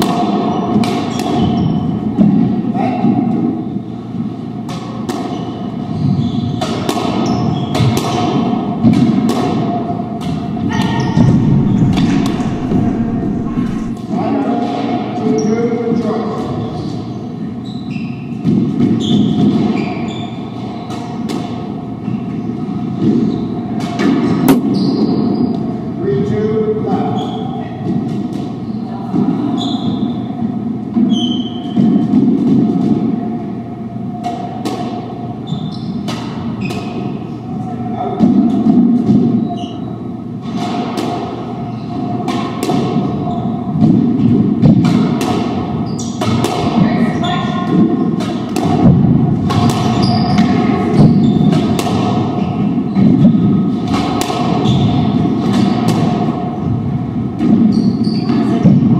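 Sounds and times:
squash ball hitting rackets and walls: 42.1 - 46.8, 47.8 - 52.3.

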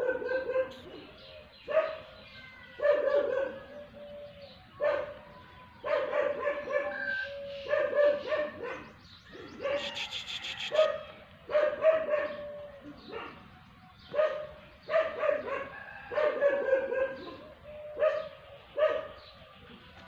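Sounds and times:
dog yelping barks: 0.0 - 1.1, 1.7 - 2.2, 2.8 - 3.8, 4.8 - 5.2, 5.8 - 13.4, 14.1 - 19.2.

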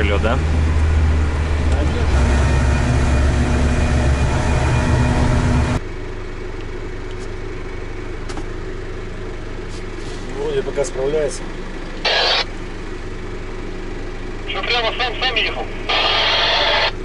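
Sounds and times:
vehicle engine rumbling in cab: 0.0 - 17.0.

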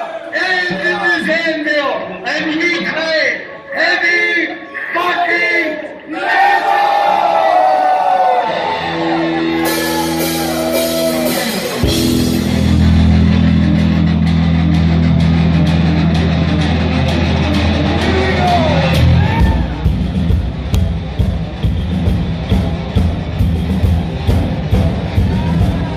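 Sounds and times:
fans shouting: 4.0 - 12.9, 15.3 - 25.9
heavy metal electric guitar chords: 8.6 - 25.9.

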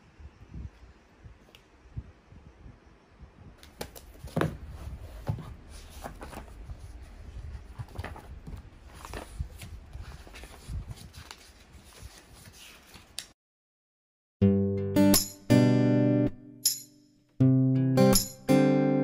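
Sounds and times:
notebook pages rustling: 3.7 - 13.3.

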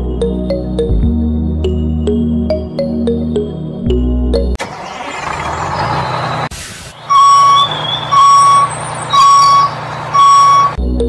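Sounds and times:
truck reversing alarm beeps: 5.7 - 10.8.

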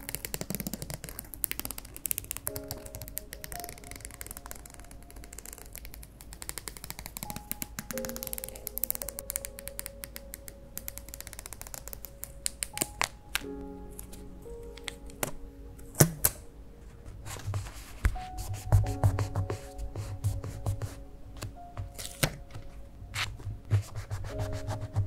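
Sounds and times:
scissors snipping sticker sheet: 0.0 - 13.1, 20.3 - 22.6
soft background music: 0.0 - 25.0.

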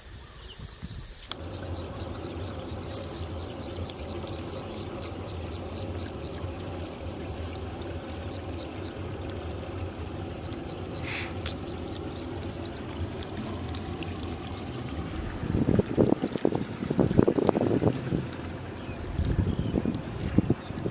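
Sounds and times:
outdoor background noise: 0.0 - 20.9
water dribbling and splashing: 1.3 - 20.9
small ticks: 9.2 - 14.4.

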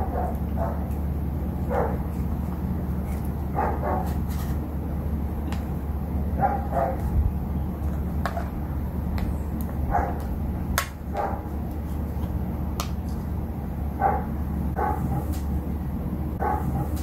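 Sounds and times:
dog barking: 0.0 - 0.9, 1.7 - 2.0, 3.5 - 4.1, 6.4 - 7.1, 9.9 - 10.3, 11.1 - 11.5, 14.0 - 15.4, 16.4 - 17.0
steady low hum: 0.0 - 17.0.

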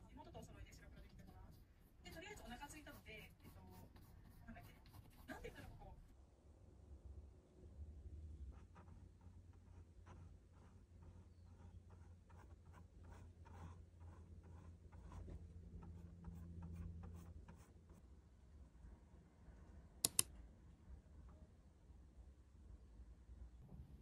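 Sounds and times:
paintbrush scratching on canvas: 0.8 - 5.8, 8.5 - 18.0
sharp clicks: 20.0 - 20.3.

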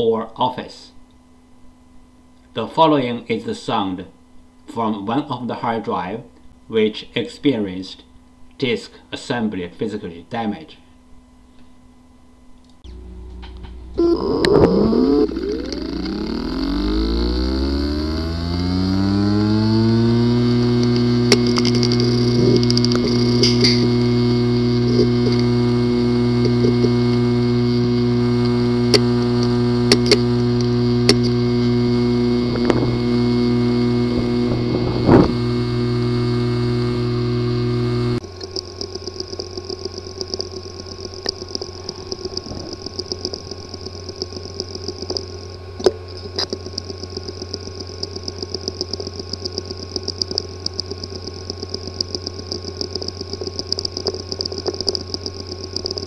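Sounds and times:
hard drive buzzing hum: 0.0 - 56.0
hard drive clicking: 12.8 - 56.0.

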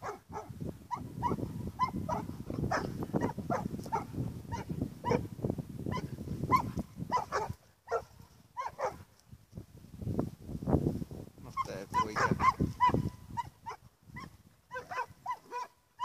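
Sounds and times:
young dog barking: 0.0 - 5.3, 5.9 - 9.1, 11.9 - 16.0.

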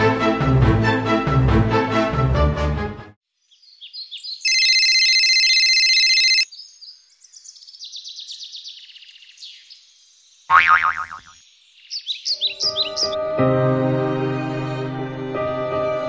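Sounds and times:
small birds chirping: 3.3 - 4.7, 6.4 - 13.2
phone ringtone: 4.5 - 6.5.

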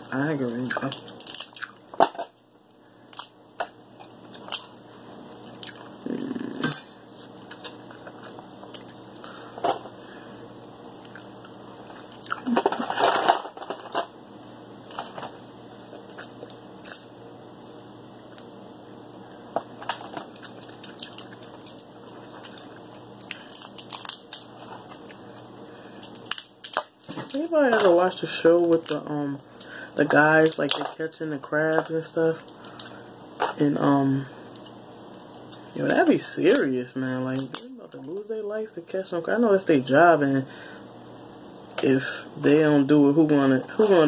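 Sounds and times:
crab shells cracking: 0.8 - 2.3, 3.1 - 4.8, 19.6 - 25.2, 26.0 - 28.0, 37.4 - 37.7
chewing: 20.2 - 24.2.

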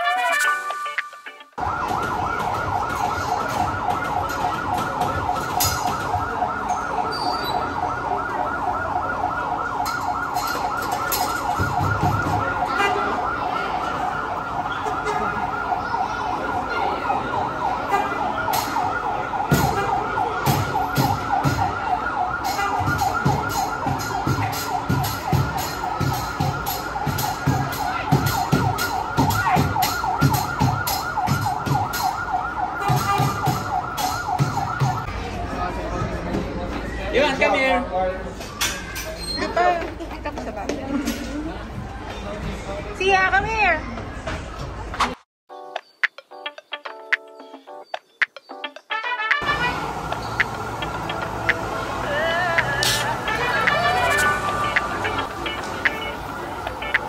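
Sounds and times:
siren warbling: 0.0 - 35.1, 48.7 - 57.0.

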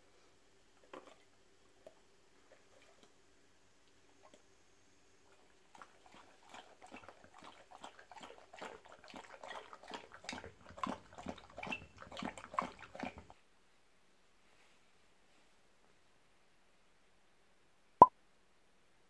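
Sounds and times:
dog lapping water: 0.8 - 3.2, 5.3 - 13.4.

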